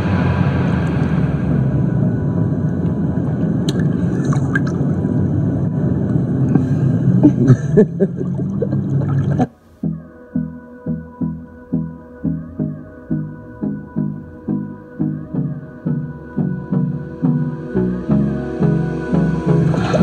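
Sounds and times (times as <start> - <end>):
music with slow pulsing beat: 0.0 - 4.0, 9.5 - 20.0
hot tub jets gurgling: 8.1 - 9.5.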